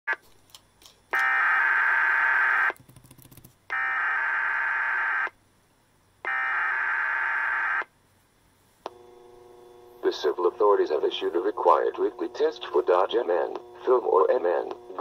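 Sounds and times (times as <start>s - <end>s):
radio click: 13.1s - 15.0s.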